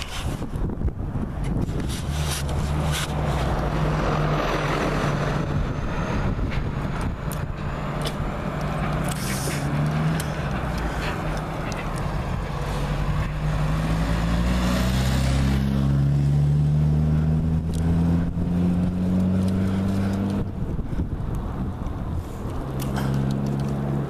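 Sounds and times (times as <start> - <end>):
van passing: 0.0 - 24.0
vehicle engine running: 0.0 - 24.0.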